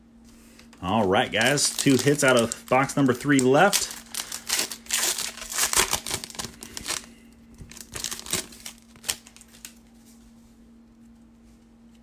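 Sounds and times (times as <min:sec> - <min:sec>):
foil wrapper crinkling: 0:00.8 - 0:10.0.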